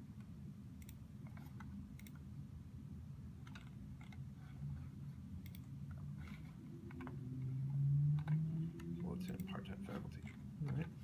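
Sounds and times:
low steady hum: 0.0 - 11.0
laptop keys and trackpad clicking: 3.4 - 4.3.

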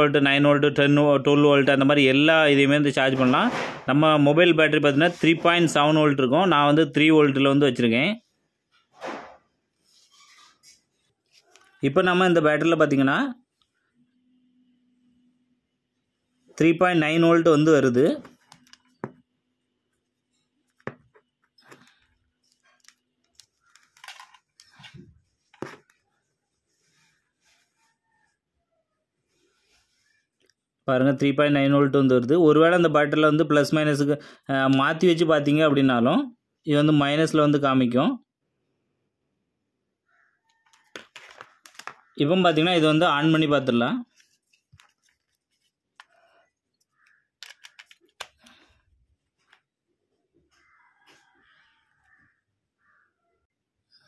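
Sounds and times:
small clicks and scraping: 20.3 - 26.1, 44.1 - 48.7
rustling: 44.0 - 49.7
phone battery plastic clicks: 47.0 - 48.4.

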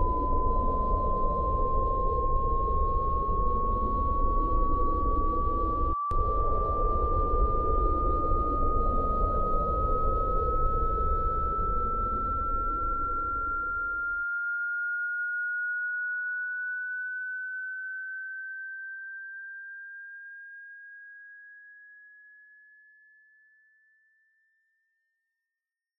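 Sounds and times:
low rumble: 0.0 - 14.2
rising electronic tone: 0.0 - 14.2.

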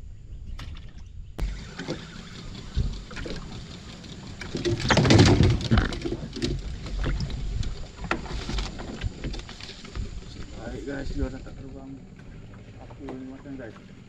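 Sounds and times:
heavy bump and rustle: 4.3 - 11.6.

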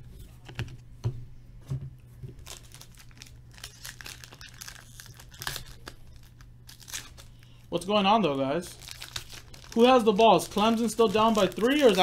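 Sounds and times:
wrapper crinkling and tearing: 2.4 - 7.4, 8.6 - 12.0.

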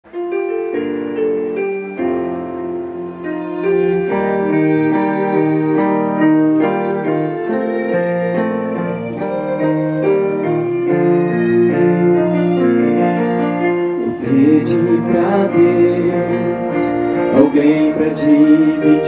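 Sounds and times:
keyboard piano chords: 0.0 - 19.0.

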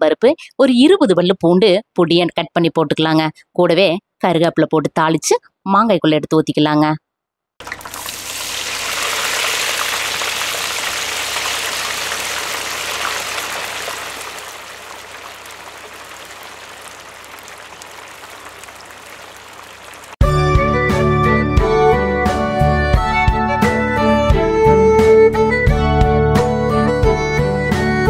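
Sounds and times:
spices sizzling in hot oil: 7.6 - 20.2.

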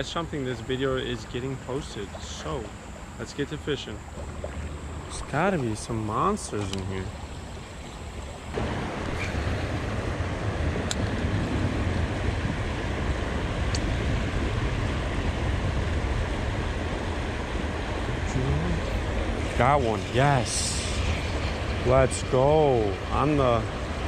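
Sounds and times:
water rushing over dam: 0.0 - 7.2, 17.9 - 24.0
wind rumble on microphone: 0.0 - 24.0.

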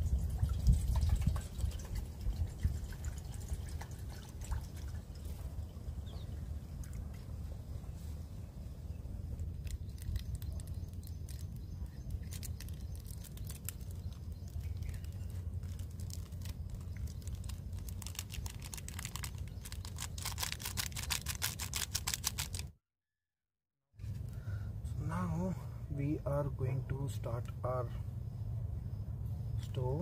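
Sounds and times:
steady low rumble: 4.4 - 20.2
plastic sachet crinkling: 9.5 - 22.7.

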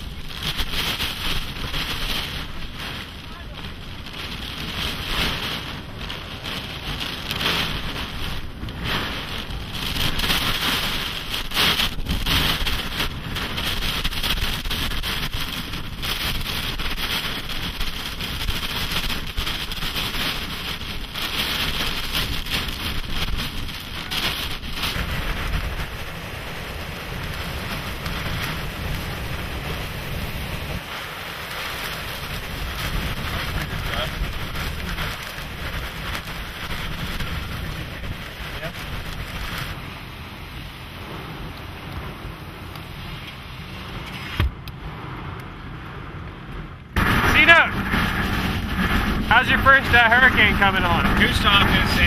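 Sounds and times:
heavy driving rain: 0.0 - 52.0
hurricane-force wind: 0.0 - 52.0.

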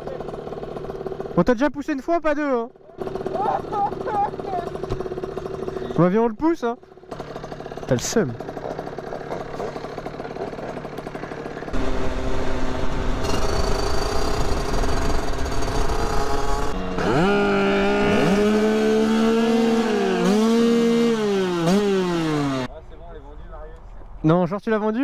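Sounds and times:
two-stroke moped engine revving: 0.0 - 1.6, 3.0 - 6.1, 6.9 - 22.7.

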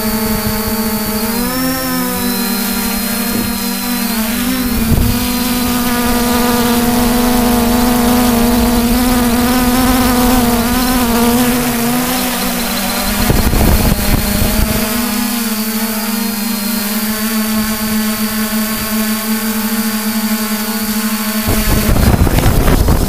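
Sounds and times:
drone propellers buzzing hum: 0.0 - 23.0
drone knocking onto dirt: 0.2 - 16.3, 21.4 - 23.0.

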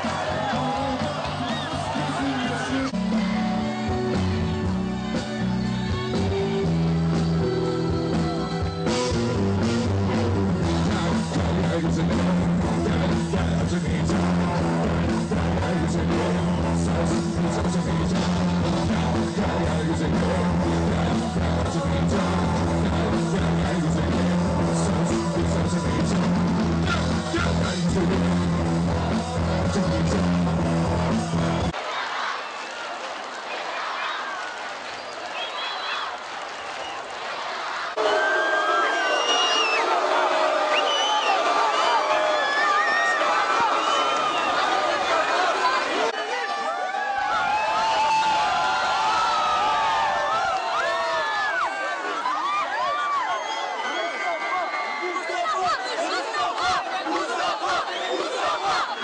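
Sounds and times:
man singing: 0.0 - 4.2, 10.0 - 31.7.

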